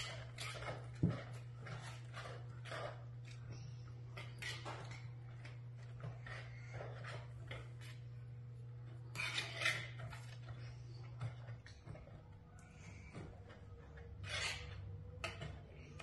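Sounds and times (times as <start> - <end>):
whisk scraping plastic bowl: 0.0 - 8.2, 13.1 - 16.0
steady low hum: 0.0 - 16.0.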